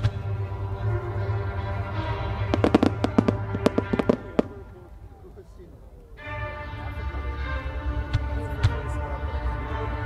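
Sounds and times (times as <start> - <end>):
steady music: 0.0 - 5.4, 6.2 - 10.0
fireworks bursting: 2.5 - 4.8.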